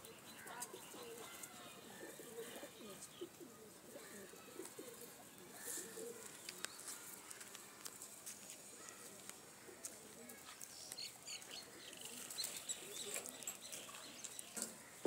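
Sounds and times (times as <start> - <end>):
pigeons cooing: 0.0 - 6.7, 11.4 - 15.0.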